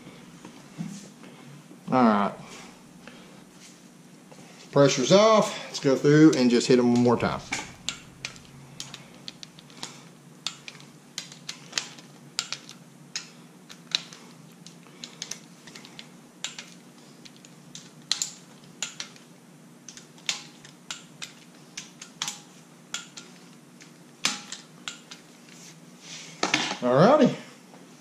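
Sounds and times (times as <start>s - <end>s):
torque wrench clicking: 6.3s - 9.5s.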